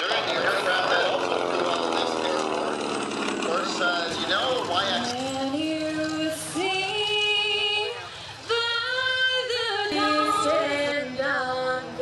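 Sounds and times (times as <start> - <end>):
woman singing long notes: 8.5 - 12.0.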